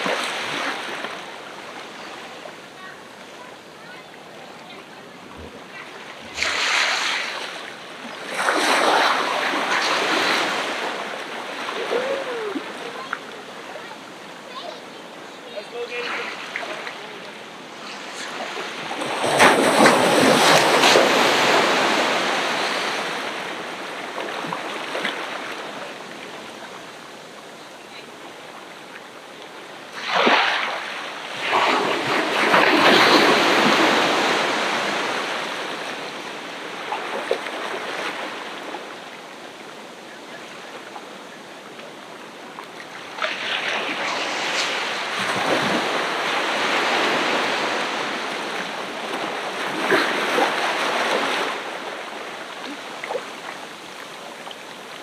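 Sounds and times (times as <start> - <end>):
ocean waves breaking: 0.0 - 55.0.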